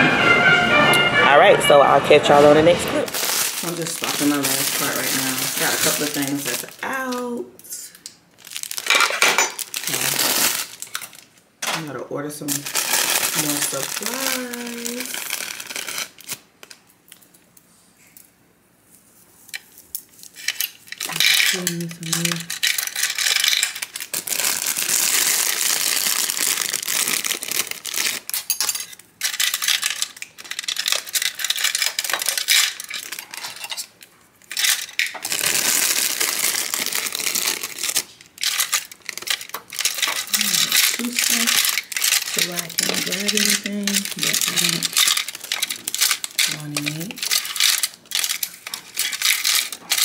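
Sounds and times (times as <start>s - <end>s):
small plastic items rattling: 2.7s - 7.4s, 8.4s - 17.2s, 19.6s - 50.0s.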